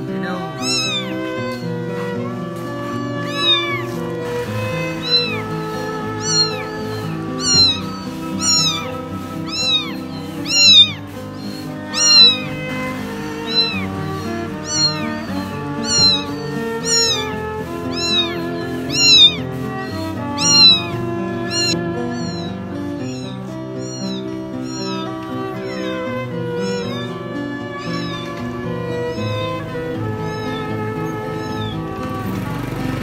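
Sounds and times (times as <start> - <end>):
kitten meowing: 0.0 - 32.4
background music: 0.0 - 33.0.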